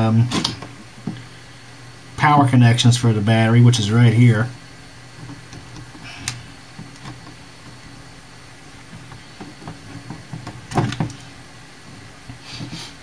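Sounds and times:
loud plastic clatter: 0.2s - 1.2s, 8.9s - 11.4s.

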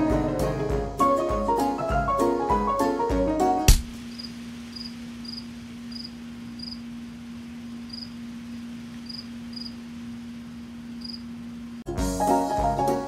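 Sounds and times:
cricket chirping: 4.0s - 11.7s.

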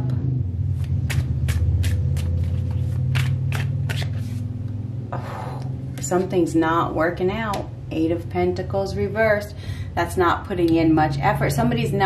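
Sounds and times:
steady low rumble: 0.0s - 12.0s
cards shuffled by hand: 0.7s - 4.5s
cards sliding rustle: 0.8s - 4.5s.

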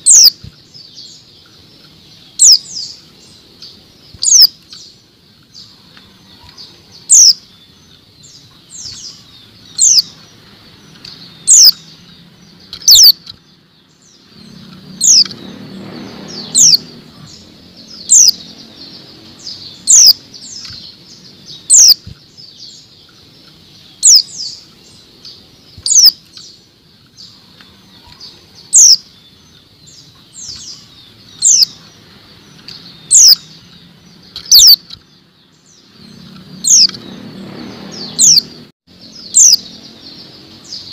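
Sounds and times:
bird calling high sharp notes: 0.0s - 0.5s, 4.2s - 4.8s, 11.0s - 12.0s, 12.7s - 13.3s, 16.4s - 18.5s, 19.5s - 22.1s, 23.8s - 26.5s, 27.3s - 29.2s, 32.7s - 35.0s.

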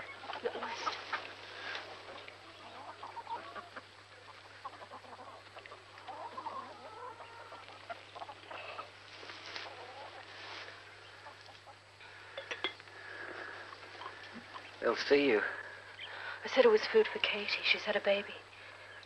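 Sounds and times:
chickens clucking: 0.0s - 16.3s
low steady hum: 0.0s - 19.0s.

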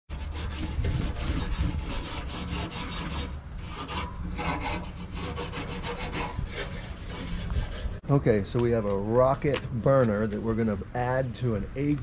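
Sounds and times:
wire brush scrubbing grill grate: 0.1s - 8.0s.

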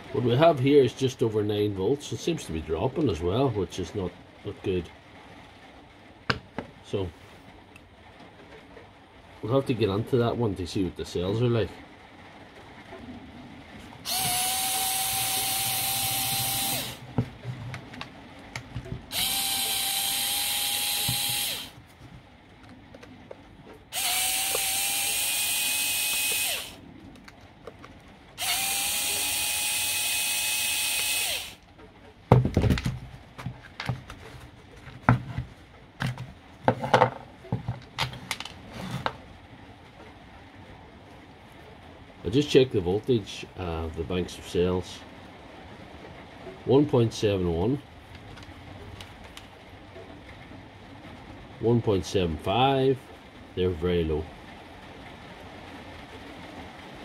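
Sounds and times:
power driver motor whine: 14.1s - 17.1s, 19.1s - 21.8s, 23.9s - 26.8s, 28.4s - 31.6s
plastic case clicks and knocks: 32.3s - 34.2s.

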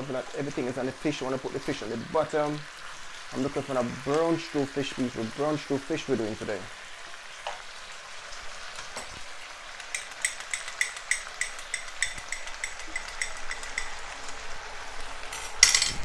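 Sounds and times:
food sizzling in frying pan: 0.0s - 16.0s
spatula knocks: 9.8s - 14.0s.

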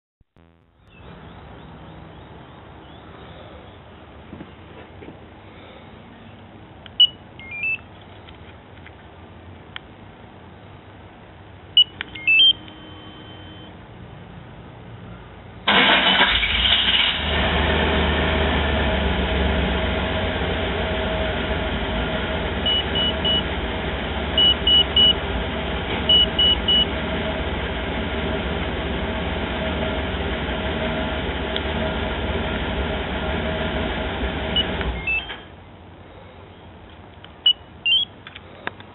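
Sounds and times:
short electronic beeps: 7.0s - 7.8s, 11.8s - 13.8s, 22.6s - 23.4s, 24.4s - 25.2s, 26.1s - 26.9s, 34.6s - 35.5s, 37.4s - 38.1s
car engine cranking and idling: 15.6s - 35.6s.

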